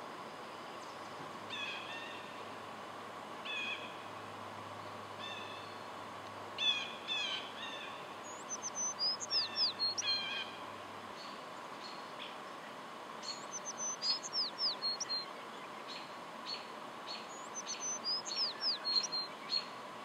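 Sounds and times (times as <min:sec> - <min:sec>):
songbirds calling: 0:00.0 - 0:20.0
downward-slurred bird whistles: 0:08.3 - 0:10.3, 0:13.3 - 0:15.2, 0:17.3 - 0:19.3.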